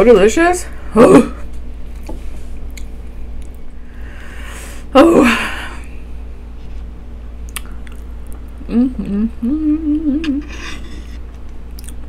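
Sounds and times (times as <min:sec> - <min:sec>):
woman breathing in: 0:03.8 - 0:04.9
woman sighing: 0:04.4 - 0:05.9.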